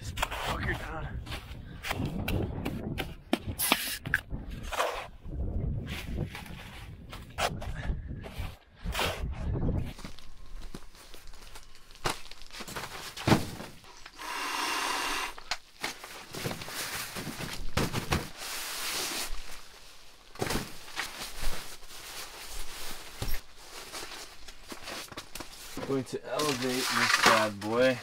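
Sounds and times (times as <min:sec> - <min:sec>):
nylon rustling: 0:15.6 - 0:27.8.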